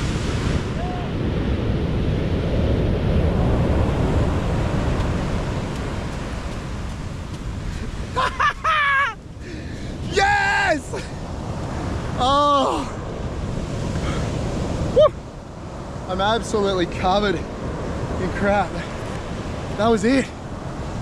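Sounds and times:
surf breaking on beach: 0.0 - 21.0
wind buffeting microphone: 0.0 - 21.0
man shouting excitedly: 10.0 - 11.1, 12.2 - 13.0.

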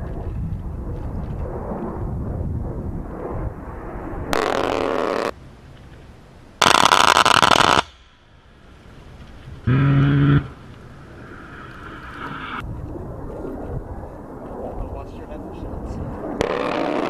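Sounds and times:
jet rumble: 0.0 - 17.0
rotary cannon buzzing burst: 9.6 - 10.6, 16.4 - 17.0.

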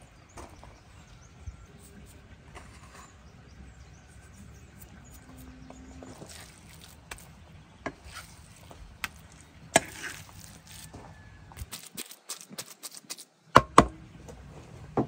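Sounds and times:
blade scraping wood: 1.7 - 13.3.

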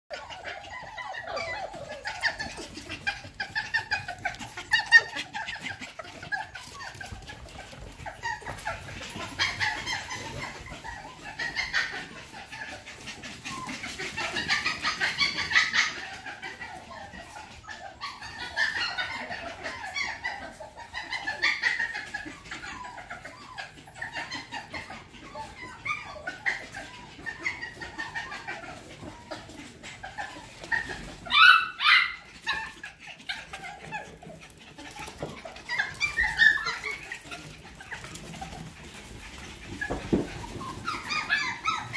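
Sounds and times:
puppies yipping and whimpering: 0.1 - 41.9.

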